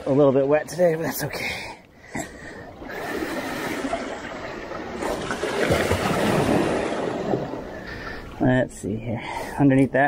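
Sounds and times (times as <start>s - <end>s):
seawater sloshing among rocks: 2.4s - 8.4s.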